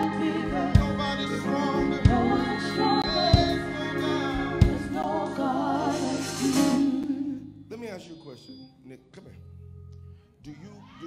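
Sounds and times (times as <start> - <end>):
voices singing praise song: 0.0 - 7.9
church band: 0.0 - 8.2.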